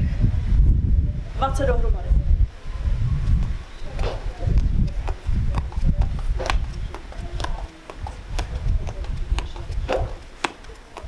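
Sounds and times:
footfalls on concrete steps: 3.4 - 11.0.

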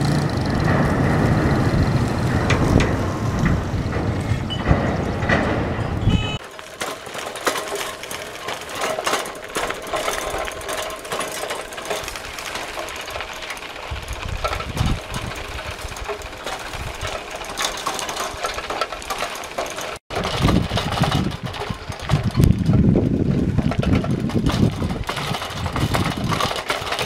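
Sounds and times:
wind rumble on microphone: 0.0 - 6.4, 13.2 - 17.2, 20.1 - 27.0
bicycle rattling on gravel: 0.0 - 27.0.

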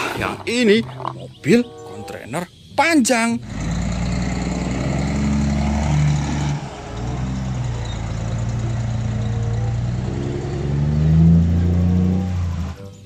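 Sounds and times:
truck diesel engine droning: 3.4 - 13.0.

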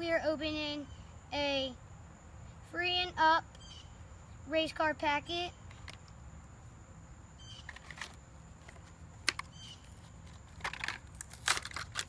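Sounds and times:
plastic packaging crackling: 10.2 - 12.0.

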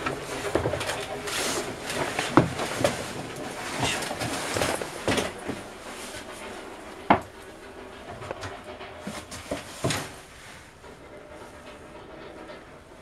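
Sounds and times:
knocks and rustling handling noise: 0.0 - 7.4, 8.1 - 10.5.

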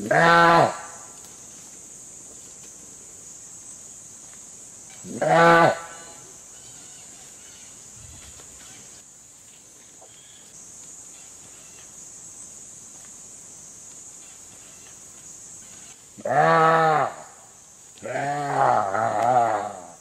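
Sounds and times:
faint high hiss: 0.0 - 20.0.

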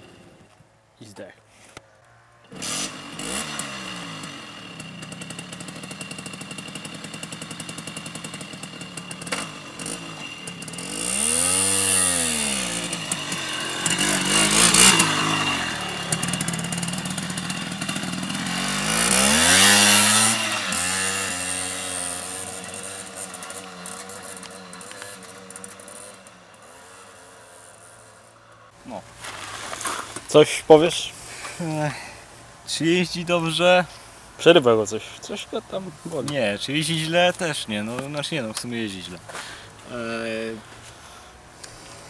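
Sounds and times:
scooter engine revving: 2.4 - 28.2.

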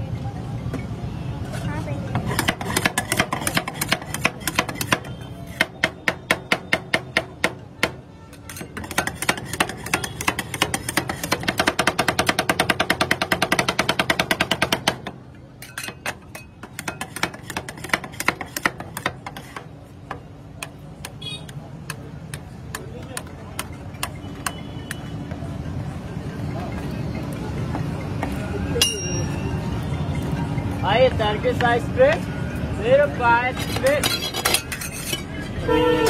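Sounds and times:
metal spatulas clacking on steel plate: 8.3 - 15.0, 15.6 - 19.7, 33.5 - 35.4.

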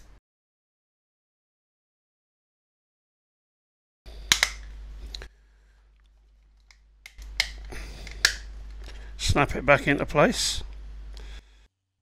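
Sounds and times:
plastic cover snapping clicks: 4.3 - 4.7.

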